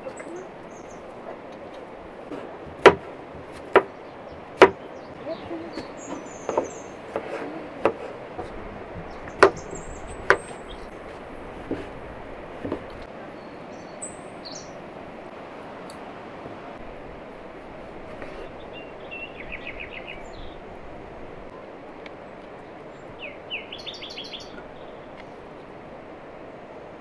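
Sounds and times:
knife knocking on cutting board: 4.6 - 4.8.

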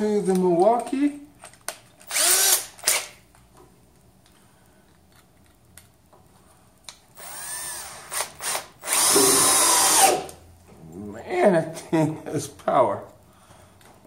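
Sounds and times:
cordless drill motor: 2.0 - 3.1, 7.2 - 10.4.

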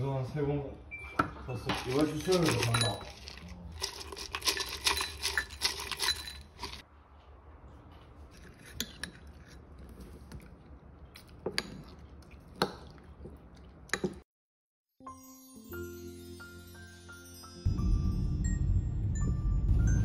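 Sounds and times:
dishes and cutlery clinking: 1.2 - 6.8, 8.3 - 9.6.

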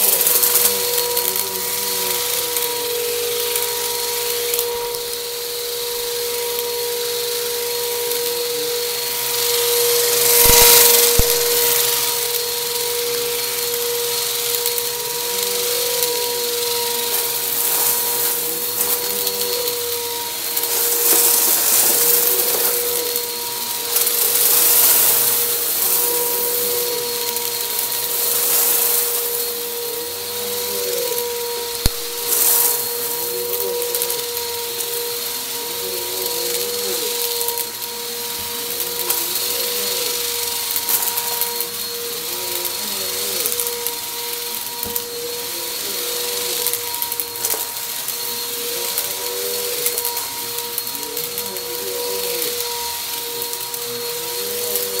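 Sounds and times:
vacuum motor whine: 0.0 - 55.0.

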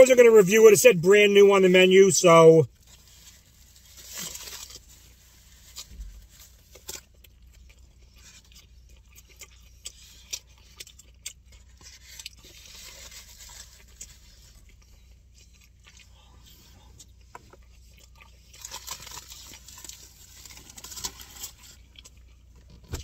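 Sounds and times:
food wrapper crinkling: 2.8 - 14.9, 17.9 - 22.8
biting into wrap: 17.6 - 23.0.

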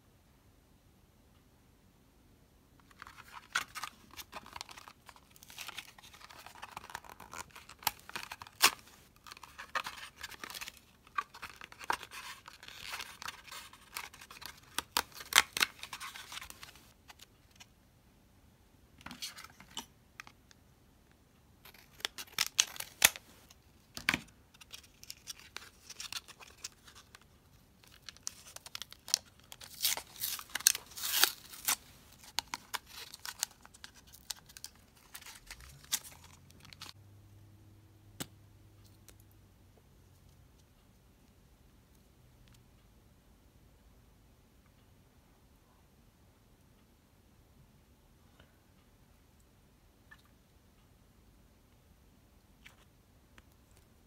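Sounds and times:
cardboard tearing: 29.6 - 31.8.

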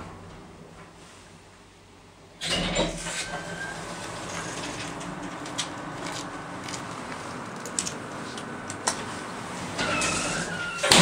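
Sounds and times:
elevator doors sliding open: 0.0 - 1.3, 2.4 - 11.0
low hum: 3.0 - 11.0.

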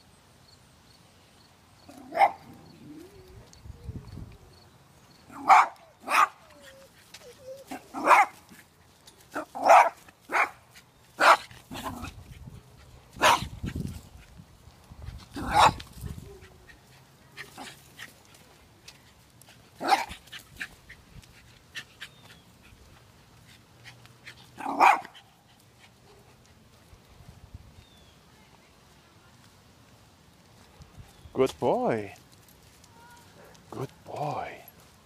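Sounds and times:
dogs barking: 1.9 - 2.6, 5.3 - 6.5, 7.7 - 8.4, 9.3 - 10.6, 11.2 - 12.1, 13.2 - 13.5, 15.4 - 15.8, 19.8 - 20.2, 24.6 - 25.3.

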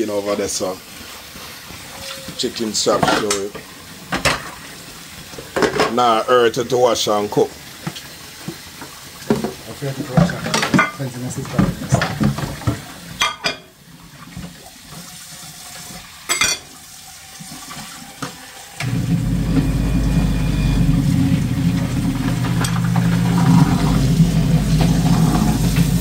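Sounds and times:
water running into a steel sink: 0.0 - 26.0
dishes clinking: 13.2 - 13.7, 16.3 - 16.7
sponge scrubbing plates: 20.8 - 26.0.

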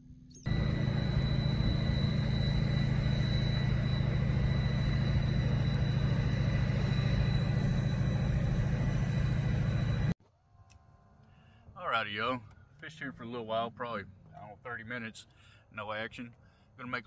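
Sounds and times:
faint high whine: 0.2 - 11.6
boat engine rumbling: 0.5 - 10.2.

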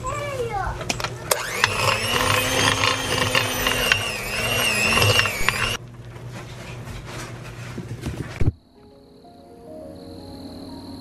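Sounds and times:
electric hand mixer whining: 1.3 - 5.8.

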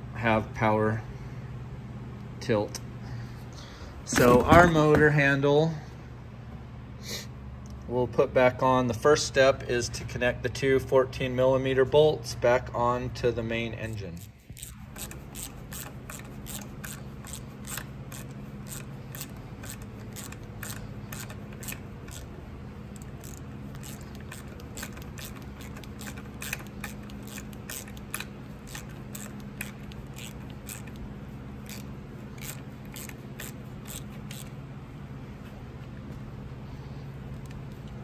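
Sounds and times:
steady low hum: 0.0 - 38.0
socket ratchet clicking: 14.2 - 34.6.

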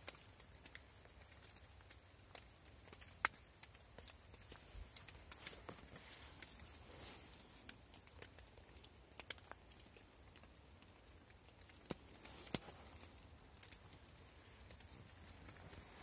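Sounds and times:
fabric rustling: 4.4 - 7.7.

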